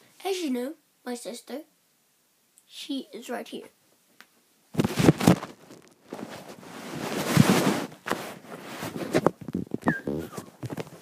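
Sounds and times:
rustling and rubbing on microphone: 4.7 - 11.0.

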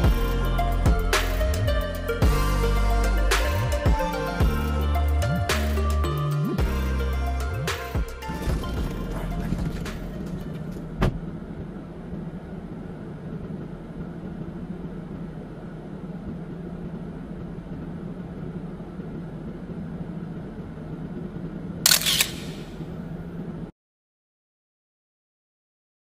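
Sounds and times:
car engine and road drone: 0.0 - 23.7.

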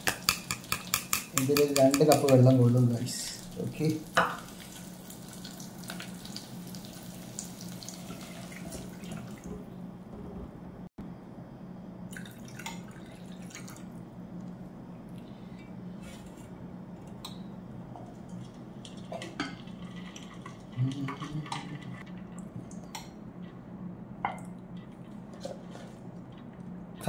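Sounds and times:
water pouring into a pot: 3.5 - 9.5
steady low hum: 8.6 - 27.0.

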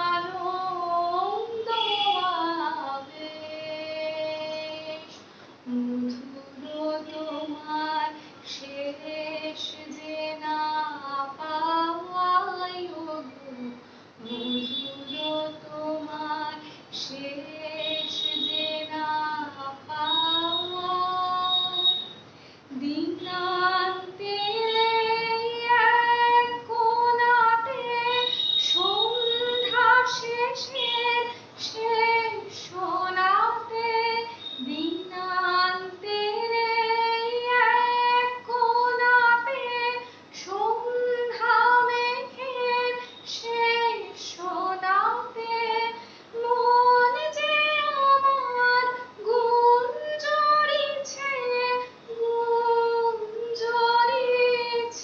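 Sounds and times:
woman singing solo: 0.0 - 22.1, 22.7 - 55.0
singer breathing: 22.2 - 22.7, 46.0 - 46.4.

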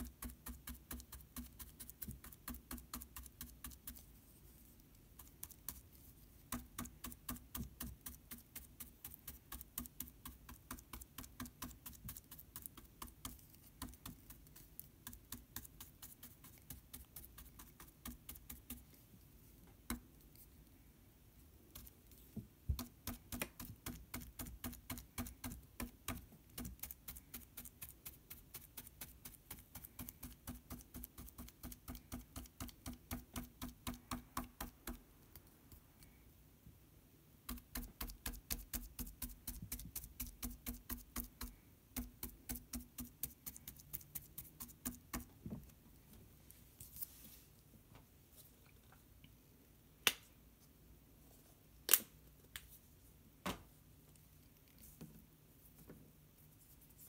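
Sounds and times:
paintbrush dabbing taps: 37.5 - 45.7.

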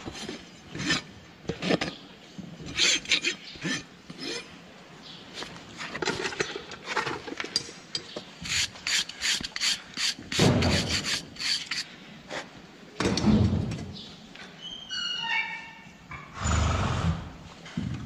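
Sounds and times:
hoof rasp scraping: 2.6 - 4.6, 8.4 - 11.9.

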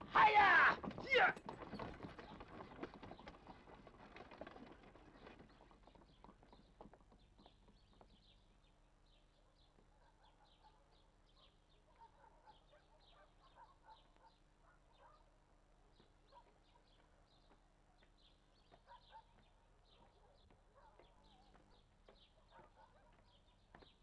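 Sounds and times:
horse-drawn cart clattering: 0.0 - 8.4
small birds chirping: 1.1 - 24.0.

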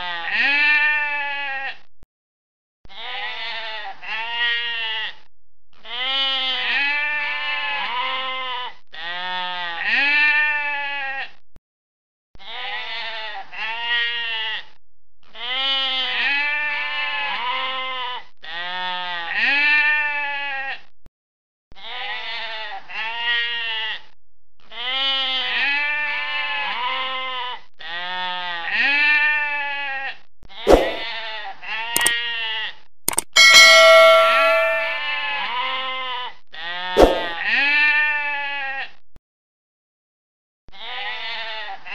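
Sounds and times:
sheep bleating: 0.1 - 1.8, 2.9 - 5.1, 5.9 - 8.4, 9.0 - 11.3, 27.8 - 30.2, 37.7 - 38.9, 40.7 - 41.8.

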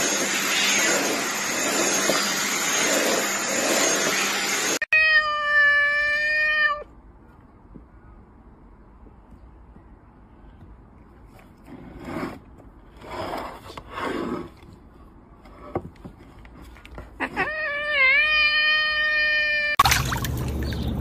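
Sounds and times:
cat meowing: 4.9 - 6.9, 17.2 - 19.8.

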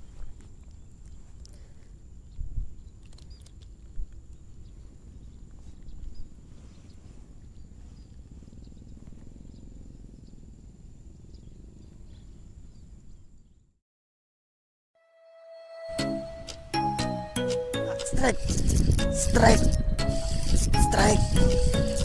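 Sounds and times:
wind rumble on microphone: 0.0 - 13.7, 18.1 - 22.0
steady high-pitched tone: 15.0 - 22.0.

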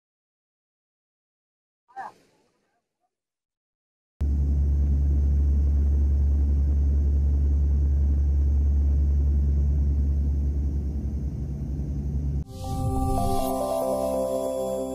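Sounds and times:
airliner engines droning: 4.2 - 14.9.

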